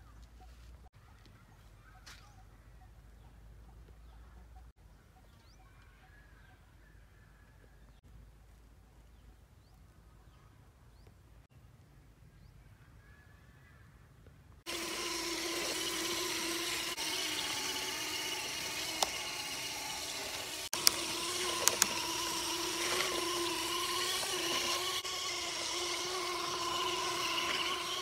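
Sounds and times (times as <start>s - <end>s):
electric motor whining: 14.7s - 28.0s
sharp clicks: 15.8s - 24.8s.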